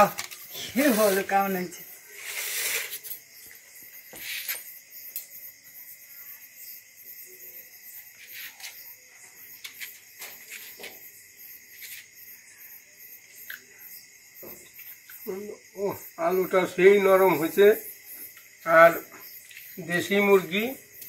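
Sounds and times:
insects chirring: 0:00.0 - 0:21.0
rustle: 0:11.7 - 0:12.1.

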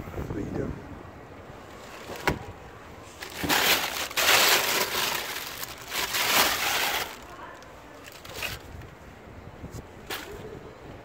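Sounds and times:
paper pages rustling: 0:03.2 - 0:07.4.

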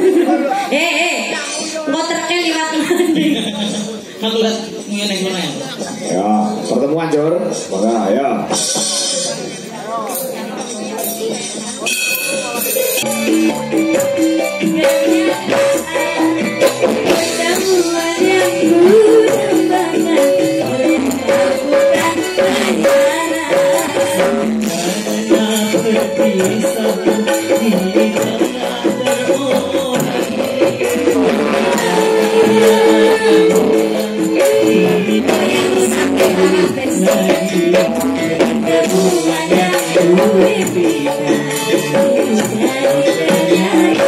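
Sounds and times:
women singing a duet: 0:14.5 - 0:44.0.

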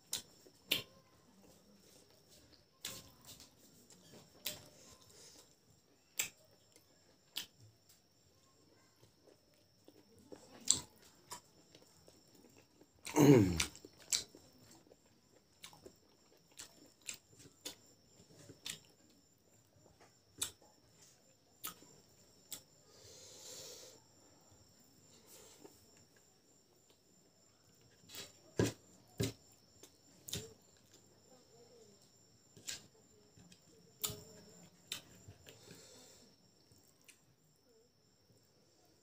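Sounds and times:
person chewing food: 0:00.0 - 0:20.8, 0:32.6 - 0:37.3.

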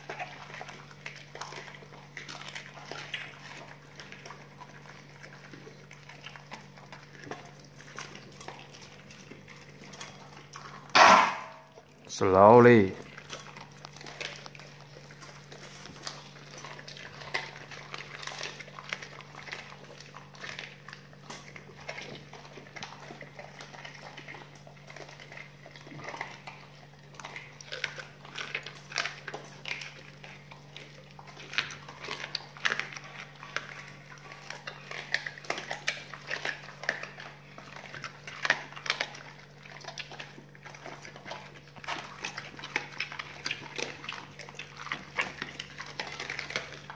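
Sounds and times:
bones crunching and cracking: 0:00.0 - 0:46.9
dogs wet chewing: 0:00.0 - 0:46.9.

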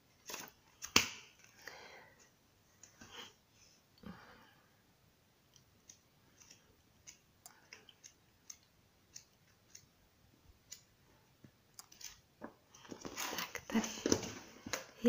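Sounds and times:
pages being turned: 0:00.2 - 0:01.5, 0:12.8 - 0:14.9.

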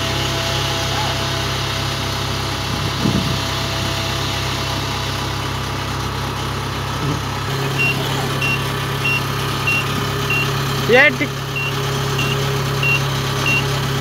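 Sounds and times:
diesel engine running: 0:00.0 - 0:14.0
reversing alarm beeping: 0:07.5 - 0:10.7, 0:11.5 - 0:13.8.

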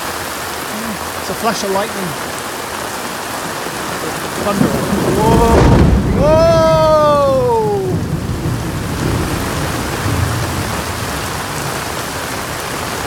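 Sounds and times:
heavy rain pouring: 0:00.0 - 0:13.0
thunder rumbling: 0:03.4 - 0:13.0.

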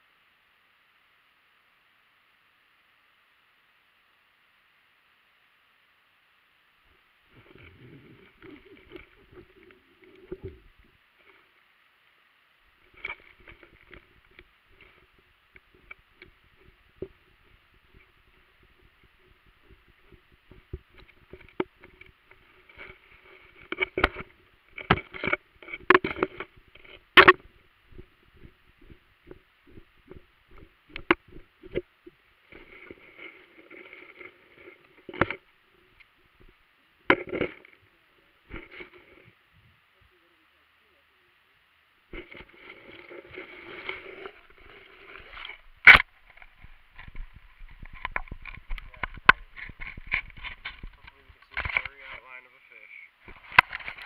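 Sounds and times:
faint steady hiss: 0:00.0 - 0:54.0
muffled underwater knocks and thuds: 0:13.0 - 0:33.0, 0:42.2 - 0:51.9.

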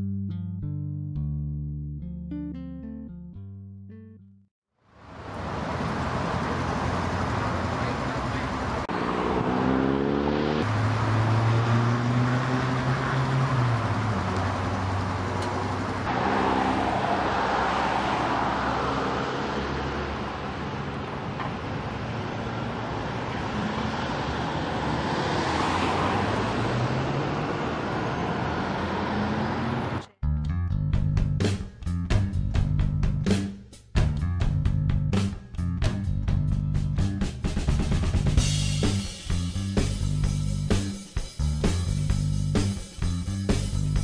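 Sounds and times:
cars passing: 0:05.0 - 0:30.1
heavy vehicle engine: 0:05.0 - 0:30.1.

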